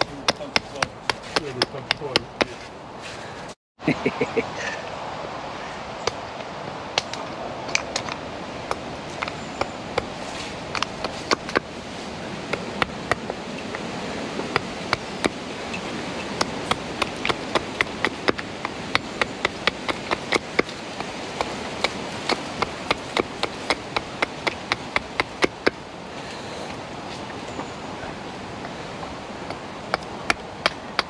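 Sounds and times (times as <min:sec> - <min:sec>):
hatchet striking wood: 0:00.0 - 0:02.6, 0:10.7 - 0:11.7, 0:16.2 - 0:25.8, 0:29.4 - 0:31.0.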